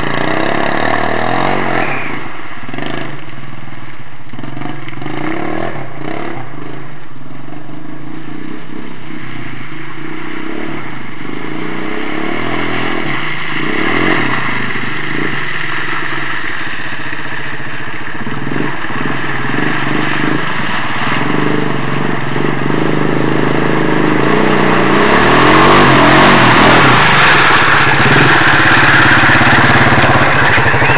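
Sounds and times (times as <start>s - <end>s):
atv engine driving through mud: 0.0s - 30.9s.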